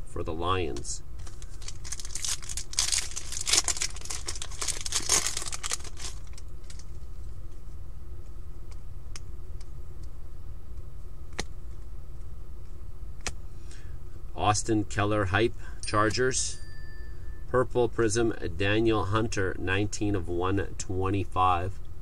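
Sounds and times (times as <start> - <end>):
foil wrapper tearing and crinkling: 1.2 - 6.9.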